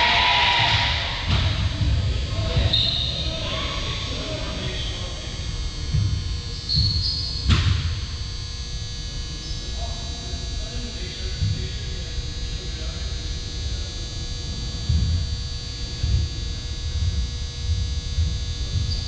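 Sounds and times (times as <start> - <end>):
distant voices: 0.0 - 7.5
low thumps echoing: 0.0 - 8.4, 11.0 - 12.2, 14.4 - 19.0.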